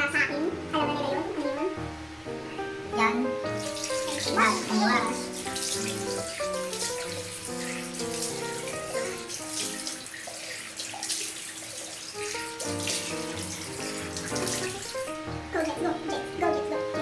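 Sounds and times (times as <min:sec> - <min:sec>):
background music: 0:00.0 - 0:10.1, 0:12.2 - 0:17.0
tap water running into sink: 0:03.0 - 0:17.0
water splashing face: 0:03.5 - 0:16.8.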